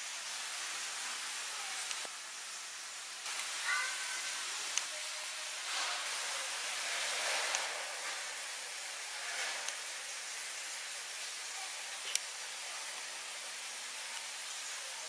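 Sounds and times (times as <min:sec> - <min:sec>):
background hiss: 0:00.0 - 0:15.0
faint clicks: 0:12.0 - 0:12.3.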